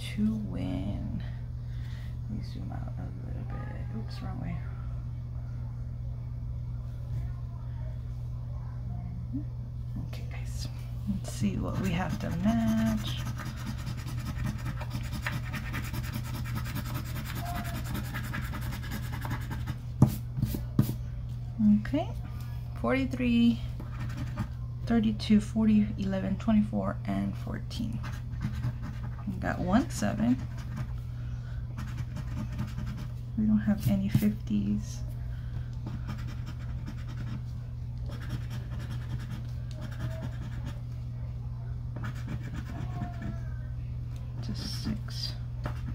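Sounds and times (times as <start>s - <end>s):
steady low hum: 0.0s - 45.9s
scratching lottery ticket: 11.2s - 19.8s, 23.8s - 24.6s, 27.9s - 31.0s, 31.8s - 33.1s, 35.8s - 37.4s, 38.0s - 40.8s, 42.0s - 43.5s, 45.6s - 45.9s.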